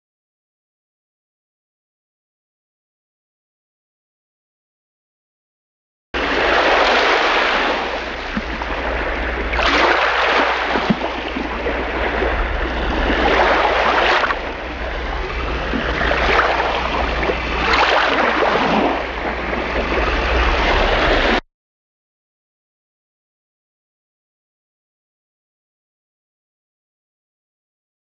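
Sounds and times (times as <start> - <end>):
sea surf breaking on beach: 6.2 - 21.4
low rumble: 10.6 - 21.4.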